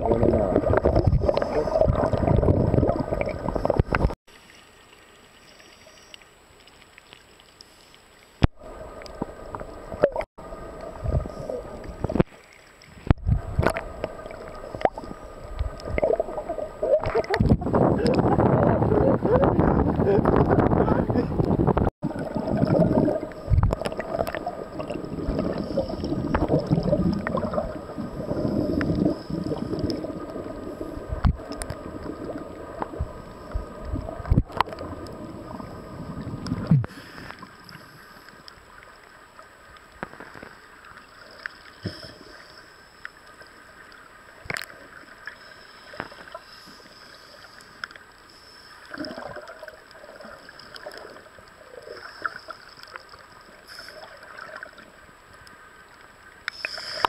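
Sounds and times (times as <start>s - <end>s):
underwater bubbling of exhaled air: 0.0s - 4.2s, 8.6s - 42.6s, 48.8s - 55.1s
underwater clicks and taps: 31.2s - 31.8s, 34.2s - 34.9s, 44.4s - 44.8s.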